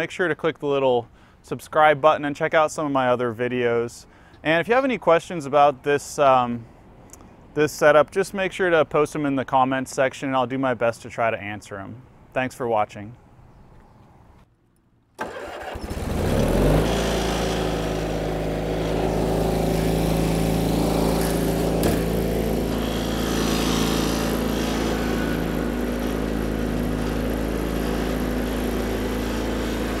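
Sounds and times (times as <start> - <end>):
electric starter cranking engine: 15.2 - 30.0
mower engine running: 15.2 - 30.0.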